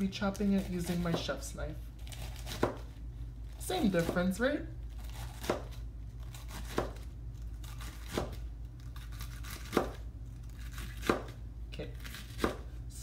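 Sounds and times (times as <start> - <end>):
low steady hum: 0.0 - 13.0
knife chopping lettuce on cutting board: 0.6 - 1.4, 2.1 - 2.9, 5.0 - 7.0, 7.6 - 8.4, 9.0 - 10.0, 10.6 - 11.4, 12.0 - 12.7.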